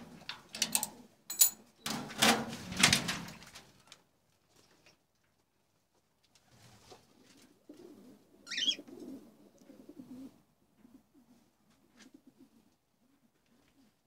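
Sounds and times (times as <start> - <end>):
birds cooing: 7.4 - 11.4
high-pitched cockatiel call: 8.5 - 8.8.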